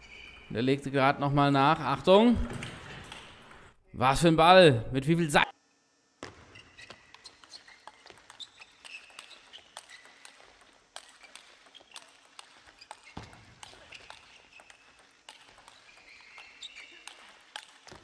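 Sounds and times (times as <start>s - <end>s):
shoe squeaks: 0.0s - 0.9s, 6.2s - 18.0s
table tennis ball clicking: 6.8s - 18.0s.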